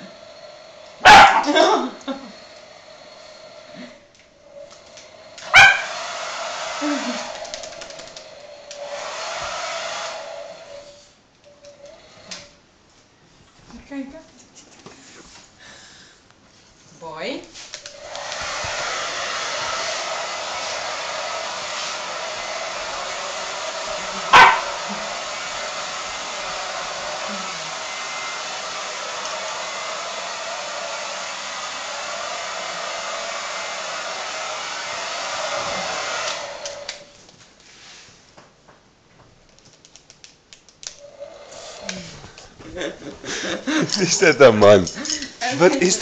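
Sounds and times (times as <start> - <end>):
hair dryer blowing: 0.0 - 11.1, 11.7 - 12.6, 17.6 - 37.2, 41.0 - 46.0.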